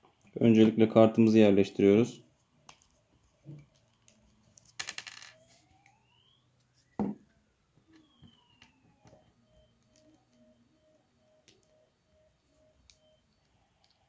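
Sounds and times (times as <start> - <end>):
faint gliding whistles: 5.6 - 14.0
faint pulsing tone: 5.6 - 14.0.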